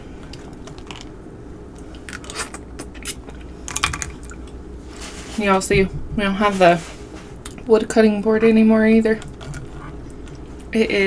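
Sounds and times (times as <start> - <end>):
steady low hum: 0.0 - 11.0
chewing and crunching: 0.2 - 1.2, 9.0 - 10.8.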